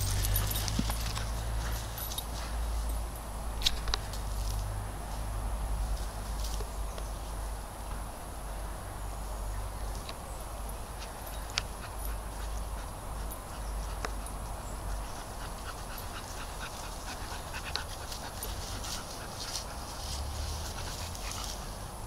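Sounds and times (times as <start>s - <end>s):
dog panting: 11.4s - 21.8s.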